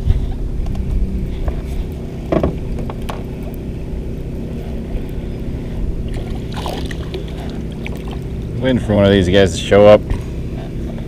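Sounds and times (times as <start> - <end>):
steady low hum: 0.0 - 11.0
water lapping against boat hull: 4.4 - 8.7
fish splash: 6.2 - 8.4.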